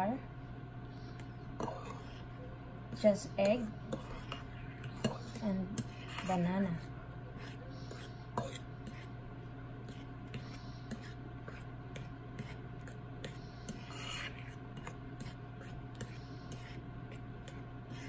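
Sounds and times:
metal spoon scraping ceramic bowl: 3.5s - 6.8s, 7.4s - 9.1s, 13.3s - 16.7s.

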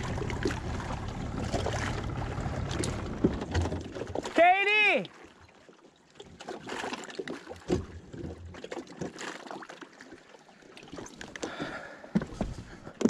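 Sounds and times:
footsteps on wooden planks: 11.4s - 13.0s.

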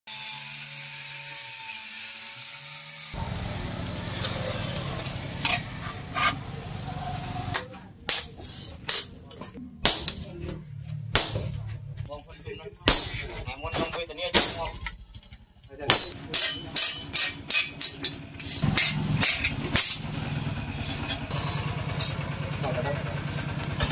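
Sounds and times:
steady background noise: 3.2s - 23.9s
hammer striking metal chisel: 9.8s - 10.3s, 11.1s - 11.6s, 15.9s - 20.0s.

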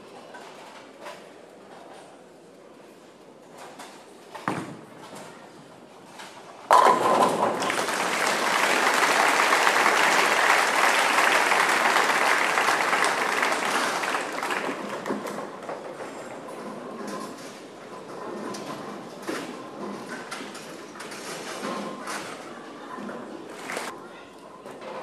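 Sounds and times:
bowling pins clattering: 6.7s - 11.0s
crowd applause: 7.2s - 15.3s.

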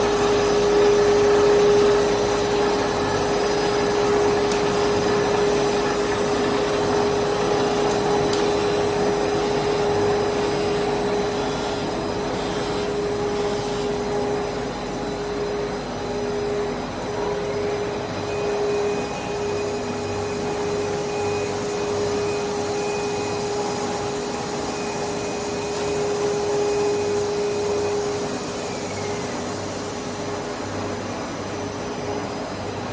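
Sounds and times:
machinery blowing hum and whine: 0.0s - 32.9s
faint high whine: 8.1s - 32.8s.

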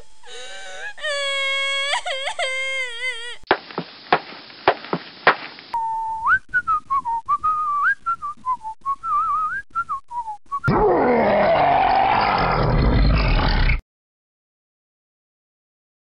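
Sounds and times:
person whistling a tune: 5.8s - 10.7s
loud rough roar: 10.7s - 13.8s.

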